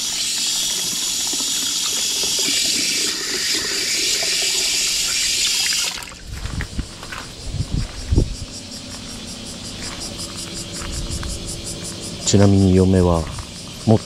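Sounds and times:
tap water rushing into plastic tank: 0.0 - 6.2.

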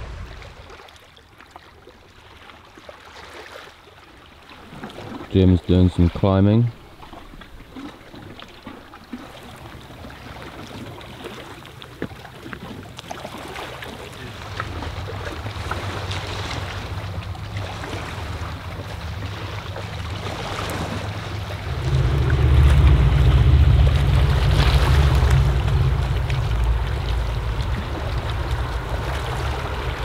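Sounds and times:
lake waves lapping on rocks: 0.0 - 30.0
wind blowing across microphone: 14.2 - 30.0.

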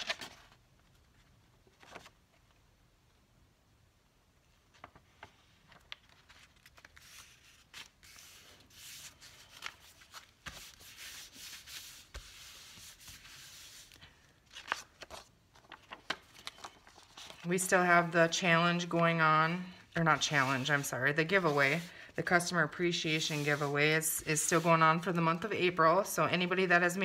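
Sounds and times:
paper crinkling: 0.0 - 2.6, 4.6 - 18.0
hands rubbing paper: 6.9 - 15.2, 16.0 - 25.2.

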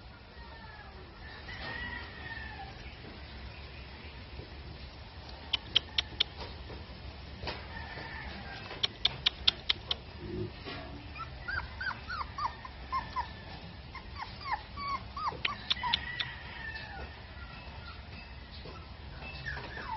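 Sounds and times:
sharp clicks: 8.8 - 10.1
puppy whimpering: 11.0 - 16.3, 18.8 - 19.9.

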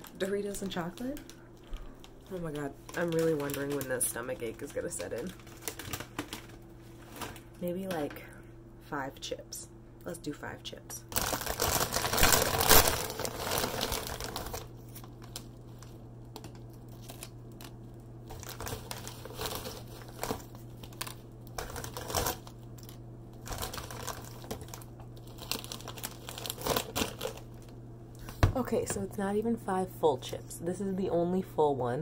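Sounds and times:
plastic chip bag crinkling: 0.0 - 7.6, 11.1 - 28.4.

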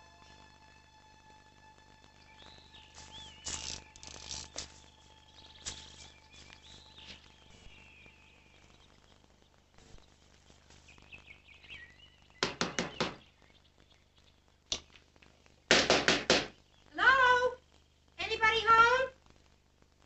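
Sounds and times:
knocking on glass-paned door: 12.4 - 13.2.

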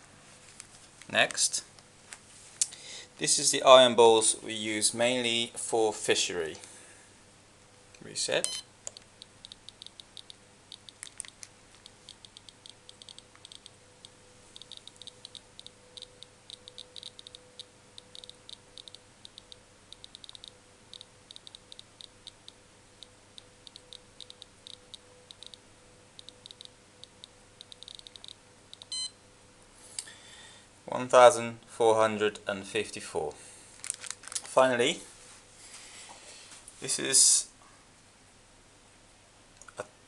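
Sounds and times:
faint steady hum: 0.0 - 40.0
ion tester clicking: 8.4 - 25.6, 26.2 - 29.0.

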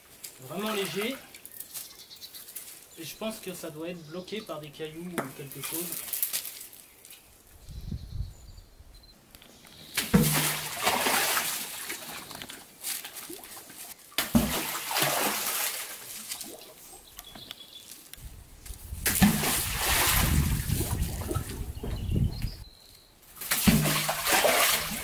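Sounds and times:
water trickling and sloshing: 9.9 - 17.2, 19.0 - 22.6, 23.3 - 25.0
magnet splashing into water: 10.0 - 12.2, 14.2 - 16.7, 19.0 - 21.8, 23.4 - 25.0.

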